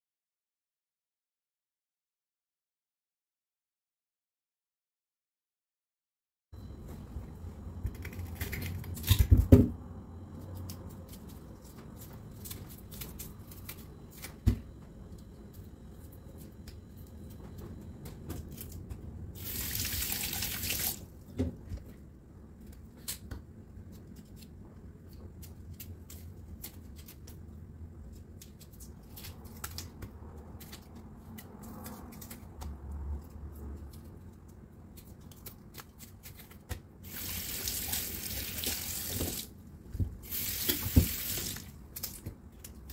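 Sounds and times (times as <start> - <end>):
tap water running: 19.4 - 21.0, 37.0 - 39.5, 40.2 - 41.7.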